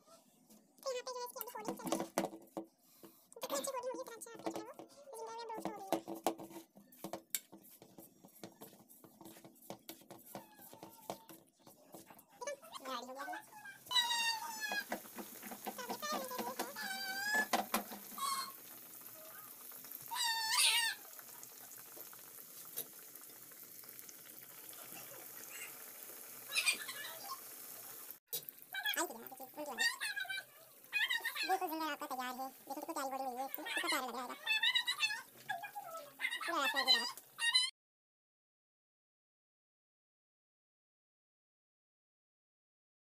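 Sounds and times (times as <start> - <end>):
food sizzling in hot oil: 1.4 - 2.6, 3.4 - 37.4
hands kneading dough: 4.5 - 18.4.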